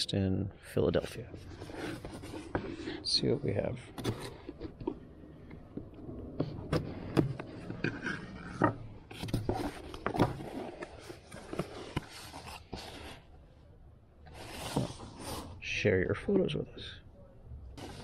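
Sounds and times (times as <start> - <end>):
scraping and rubbing on cardboard: 1.2 - 5.2, 6.4 - 13.3, 14.2 - 15.6.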